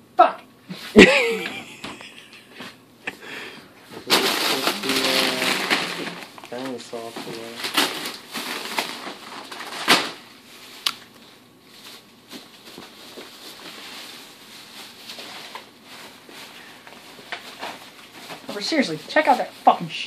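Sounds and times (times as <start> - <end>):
shopping bags rustling: 3.9 - 20.0
light clicks of packages: 4.1 - 10.2.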